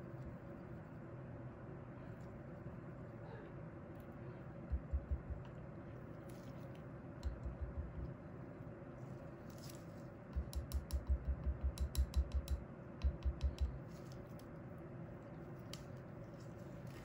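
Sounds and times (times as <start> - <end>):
skewer tapping glass cup rim: 7.2 - 8.1, 10.3 - 13.8.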